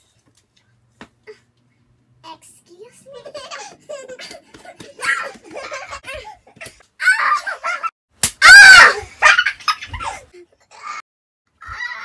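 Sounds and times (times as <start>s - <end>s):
loud high yell: 8.4s - 9.0s.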